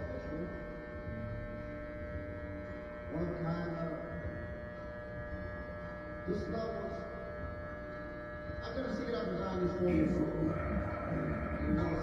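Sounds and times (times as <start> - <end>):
electric hair clippers buzzing: 0.0 - 12.0
person speaking: 10.0 - 12.0.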